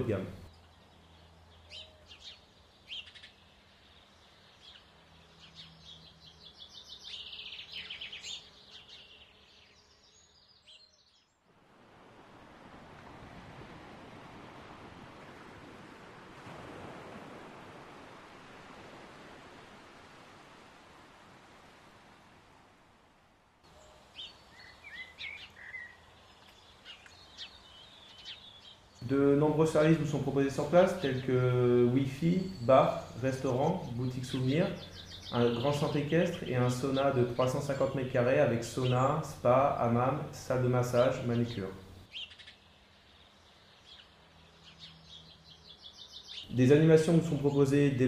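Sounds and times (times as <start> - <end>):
faint steady hiss: 0.0 - 10.5, 11.5 - 48.0
birds chirping and trilling: 0.0 - 11.5, 23.7 - 48.0
wind: 0.0 - 48.0
surf: 11.8 - 22.7.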